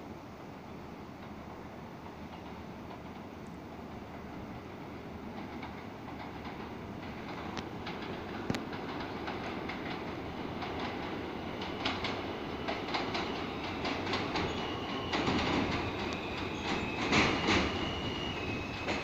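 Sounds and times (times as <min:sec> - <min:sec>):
train wheels clicking over rail joints: 0:01.2 - 0:19.0
high wheel squeal: 0:11.8 - 0:19.0.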